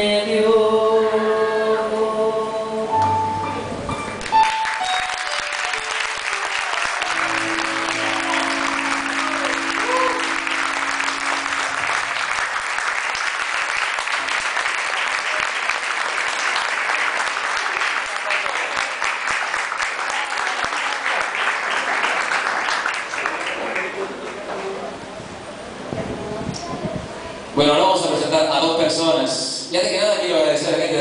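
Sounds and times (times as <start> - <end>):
audience applauding: 4.2 - 24.9
band's last chord ringing: 7.0 - 12.6.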